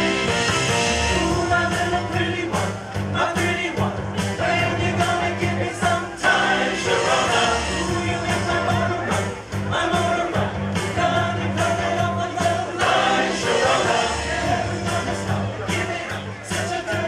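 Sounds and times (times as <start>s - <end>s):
backing track with bass and drums: 0.0s - 17.0s
men's chorus singing: 0.9s - 17.0s.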